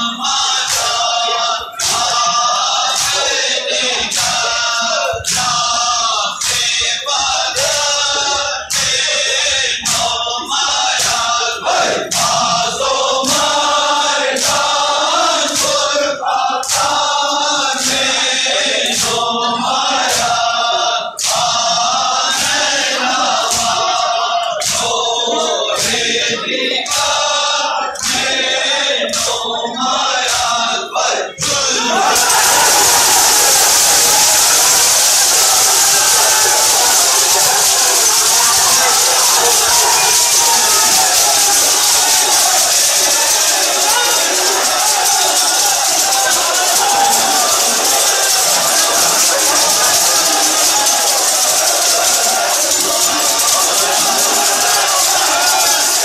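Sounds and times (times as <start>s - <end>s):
men chanting in chorus: 0.0s - 56.0s
sharp rhythmic strikes: 0.0s - 56.0s
loud rushing noise: 31.9s - 56.0s.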